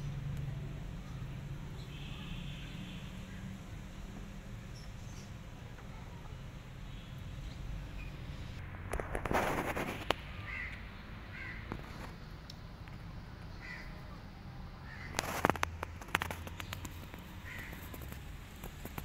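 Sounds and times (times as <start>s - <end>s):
crackling rustle: 8.6s - 10.8s, 11.6s - 13.0s, 14.9s - 19.0s.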